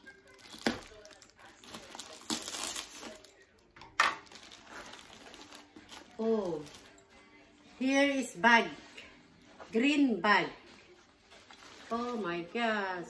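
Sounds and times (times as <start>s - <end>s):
plastic bag crinkling and tearing: 0.0s - 3.4s, 4.2s - 7.0s.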